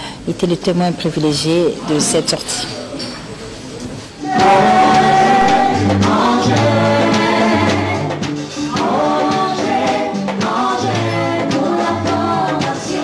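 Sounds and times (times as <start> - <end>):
group singing into microphones: 4.2 - 13.0
low bass notes: 4.4 - 8.9.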